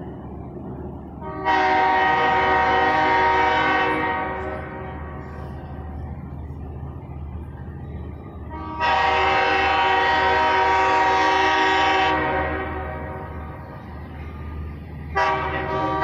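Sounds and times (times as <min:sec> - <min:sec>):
locomotive air horn blast: 0:01.2 - 0:05.7, 0:08.4 - 0:13.4, 0:15.1 - 0:16.0.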